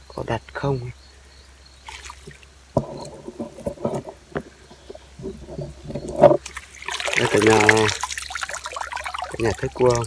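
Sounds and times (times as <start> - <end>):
water splashes: 1.8 - 3.7, 5.9 - 10.0
footsteps sloshing through stream: 1.8 - 10.0.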